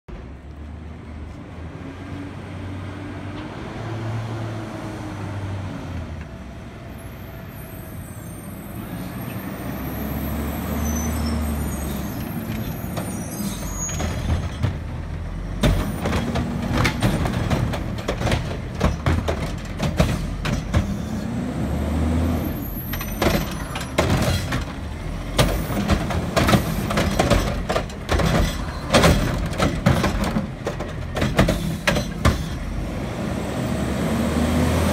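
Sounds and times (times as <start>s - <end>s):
air brakes hissing: 31.4s - 32.7s.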